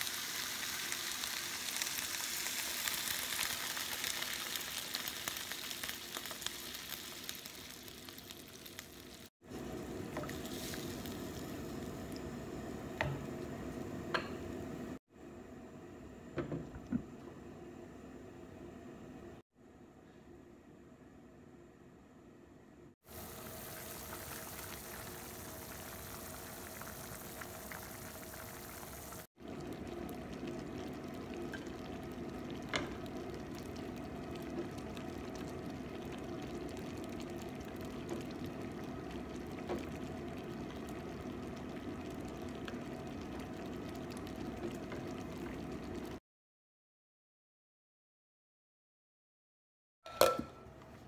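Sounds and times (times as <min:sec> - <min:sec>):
soup bubbling in a pan: 0:00.0 - 0:13.9, 0:23.1 - 0:46.2.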